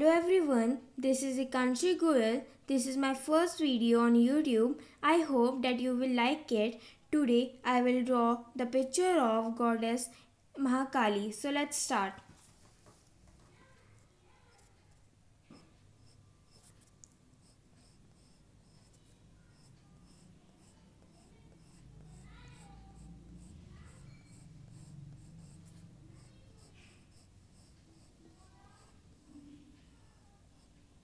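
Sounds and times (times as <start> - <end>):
drawing strokes on paper: 14.3 - 31.0.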